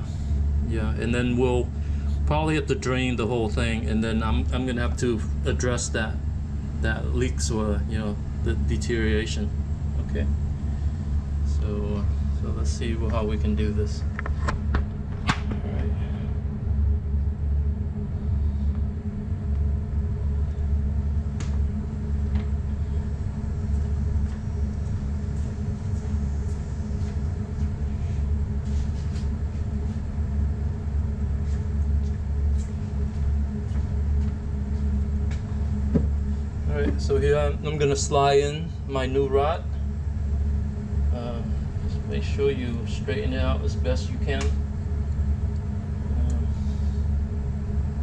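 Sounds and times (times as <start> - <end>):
low mechanical hum: 0.0 - 48.0.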